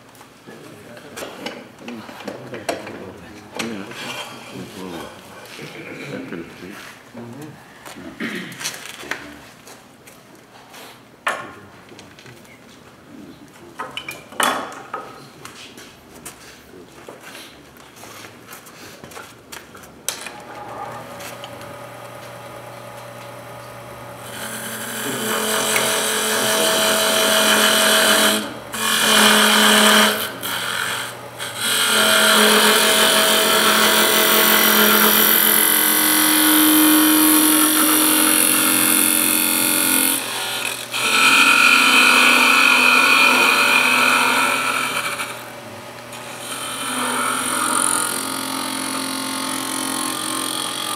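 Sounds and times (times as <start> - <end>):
lathe motor hum: 20.3 - 50.9.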